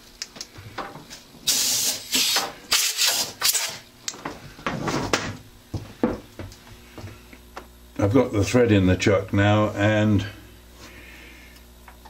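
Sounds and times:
short hissing bursts: 1.5s - 3.8s.

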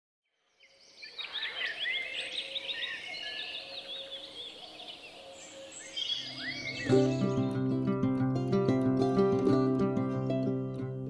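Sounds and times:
songbirds chirping: 0.3s - 11.0s.

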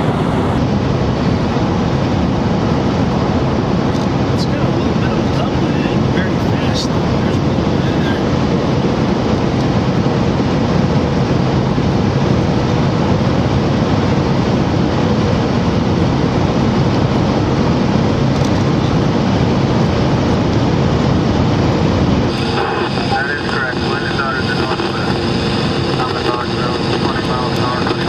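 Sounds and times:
car road and engine noise: 0.0s - 28.0s.

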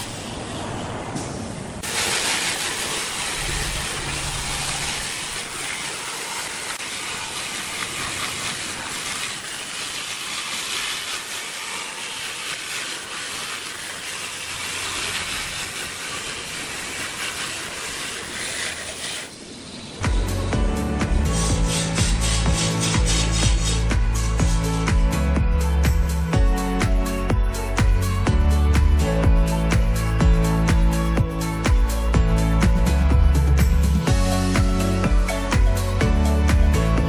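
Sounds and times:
angle grinder sanding wood: 2.2s - 19.5s, 21.0s - 24.8s.

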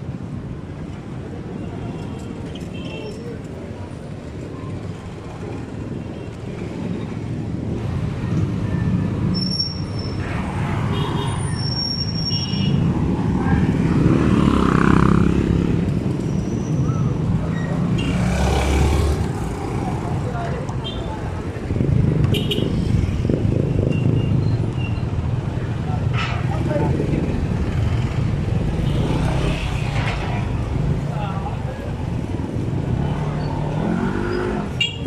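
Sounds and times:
passing vehicle engines: 3.2s - 35.0s
short high squeaks: 11.4s - 12.8s.

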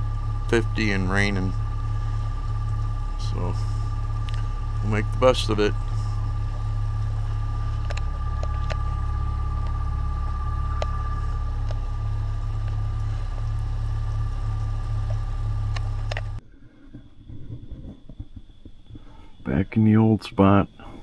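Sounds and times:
boat motor running: 0.0s - 16.4s
high whine: 0.0s - 21.0s.

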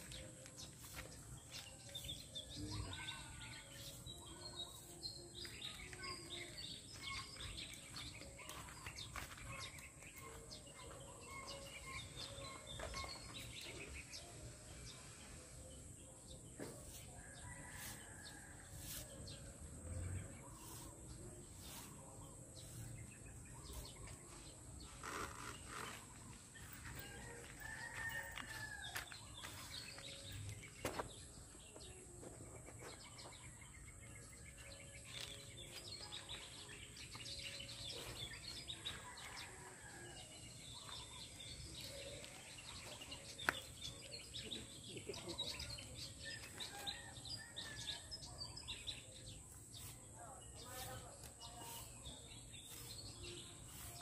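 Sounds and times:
birds chirping: 20.2s - 54.0s.

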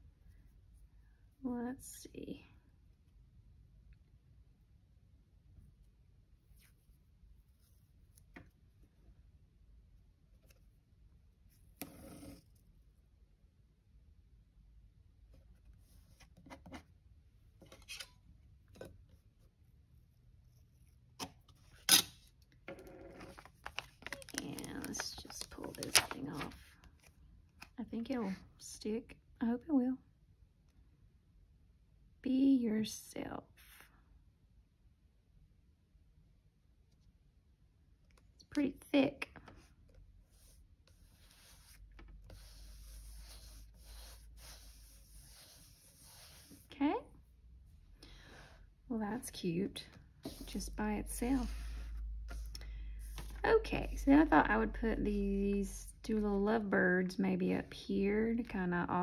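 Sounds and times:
tape rubbing and rustling on paper: 23.2s - 27.1s, 40.3s - 46.7s, 50.2s - 53.7s
crinkly sticker sheet rustling: 23.2s - 27.2s.

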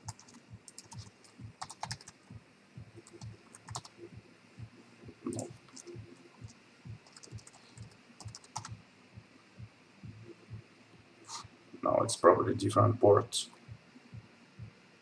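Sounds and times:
computer keyboard keystrokes: 0.0s - 2.2s, 3.0s - 3.9s, 5.3s - 8.7s.

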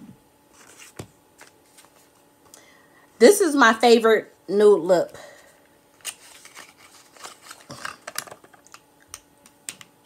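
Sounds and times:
packaging rustling: 6.0s - 8.8s.

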